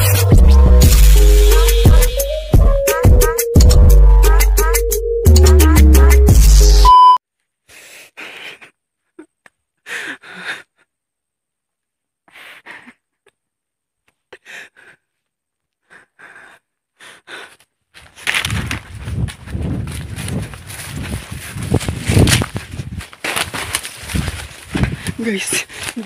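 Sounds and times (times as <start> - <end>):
rustling noise: 17.9 - 26.0.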